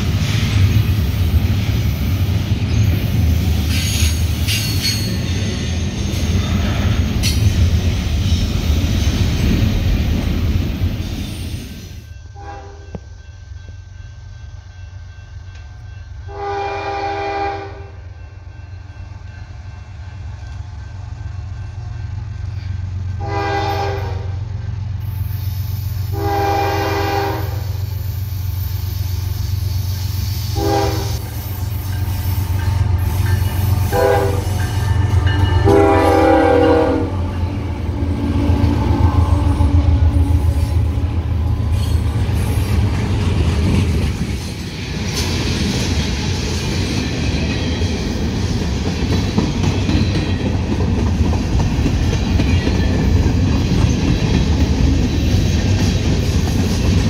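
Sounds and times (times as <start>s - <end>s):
train wheels clattering on rails: 0.0s - 16.4s, 27.2s - 57.0s
train horn blasts: 12.3s - 13.1s, 16.3s - 18.0s, 23.1s - 24.5s, 26.1s - 27.8s, 30.5s - 31.4s, 32.8s - 41.0s
locomotive engines rumbling: 17.1s - 57.0s.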